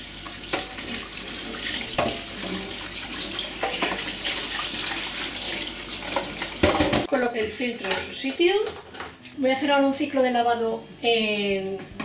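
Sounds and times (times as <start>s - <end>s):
tap running into metal sink: 6.0s - 7.1s.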